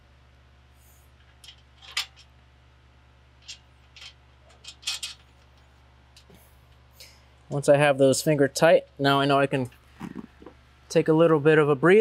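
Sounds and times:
metal nuts and washers clinking: 3.4 - 5.7.

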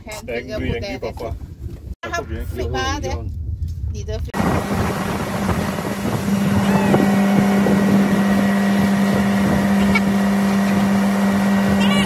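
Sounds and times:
wind on microphone: 0.0 - 12.0
motorboat engine running: 4.4 - 12.0.

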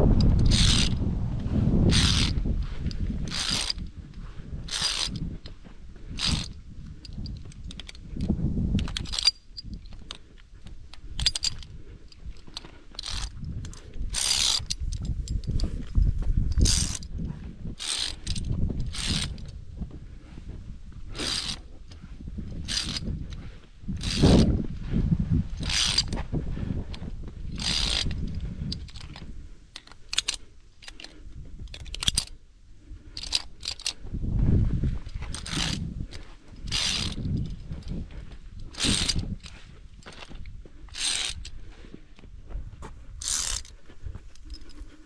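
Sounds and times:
carabiners scraping steel cable: 0.0 - 1.1, 1.7 - 19.6, 20.2 - 24.6, 25.3 - 34.2, 35.0 - 42.3, 43.1 - 45.0
low handling rumble: 0.0 - 29.7.

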